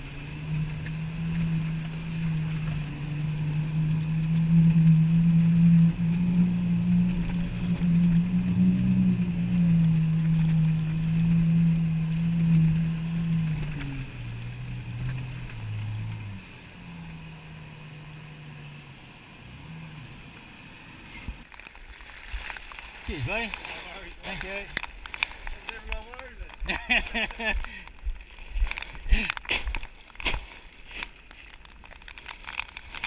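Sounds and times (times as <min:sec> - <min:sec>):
water washing over tarp: 0:00.0 - 0:18.8, 0:21.4 - 0:33.0
vehicle engine pulling under load: 0:00.0 - 0:21.6.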